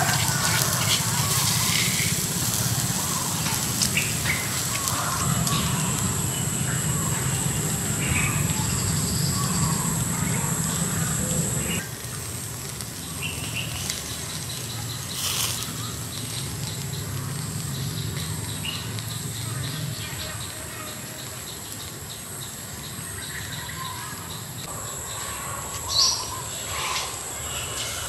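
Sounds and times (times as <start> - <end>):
low rumble: 0.0 - 11.8
steady high tone: 0.0 - 11.8
small birds chirping: 0.0 - 28.0.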